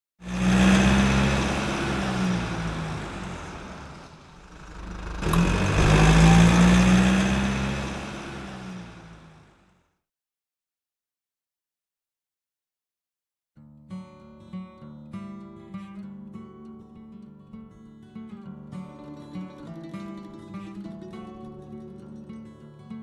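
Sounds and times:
car engine running: 0.2s - 9.7s.

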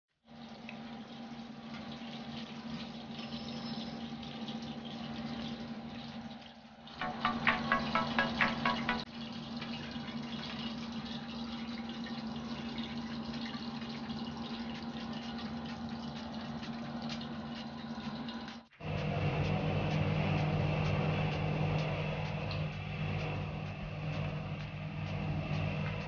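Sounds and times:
hot oil sizzling: 1.5s - 26.0s
low hum: 15.4s - 26.0s.

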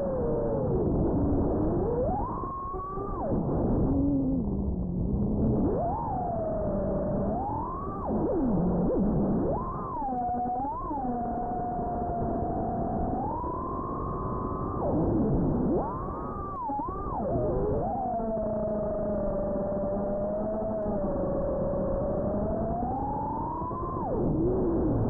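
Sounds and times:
drone motors whining: 5.3s - 25.0s.

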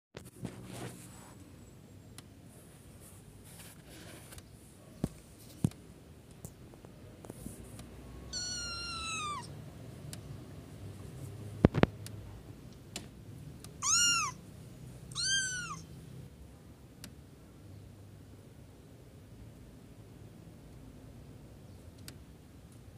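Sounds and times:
kitten mewing: 8.3s - 9.6s, 13.8s - 14.4s, 15.1s - 15.9s.

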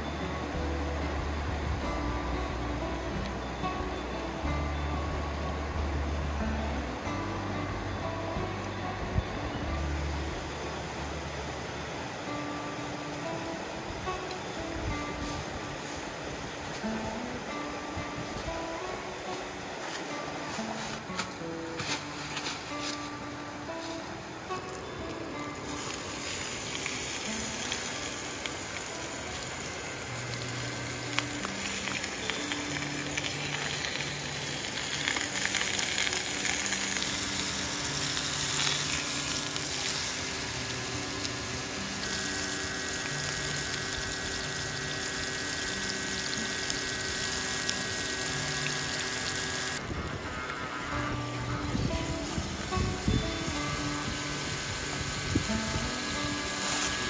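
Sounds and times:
background music: 0.0s - 57.0s
steak sizzling in skillet: 23.7s - 49.8s, 51.8s - 57.0s.

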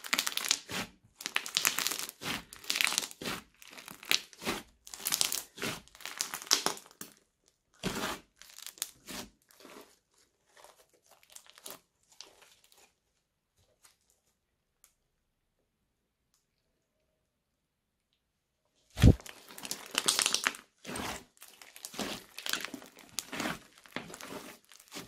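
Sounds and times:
crunchy slime crackling: 0.0s - 7.2s, 7.8s - 13.0s, 19.0s - 25.0s.

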